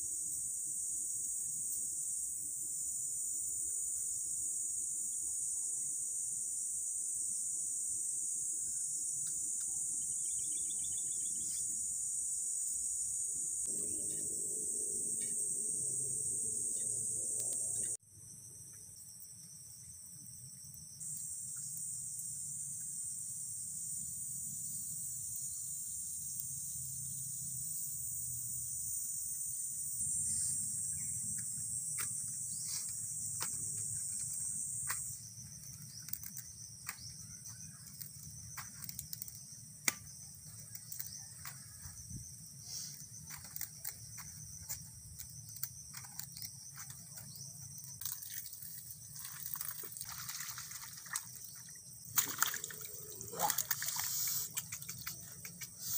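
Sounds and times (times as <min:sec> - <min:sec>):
insects chirring: 0:00.0 - 0:55.9
handling clicks and rustles: 0:43.0 - 0:50.1.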